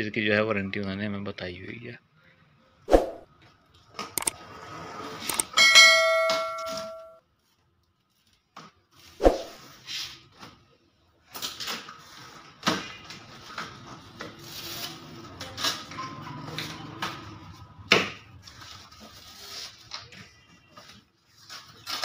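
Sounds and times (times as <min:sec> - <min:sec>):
bright ringing chime: 0:05.4 - 0:07.2.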